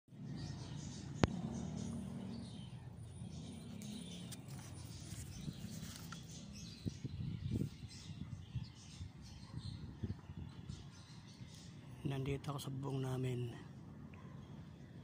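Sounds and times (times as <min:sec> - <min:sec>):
small birds chirping: 0:00.1 - 0:15.0.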